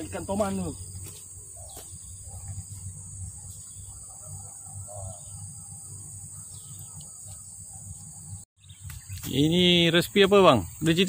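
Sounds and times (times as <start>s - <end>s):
high-pitched insect drone: 0.0s - 8.5s.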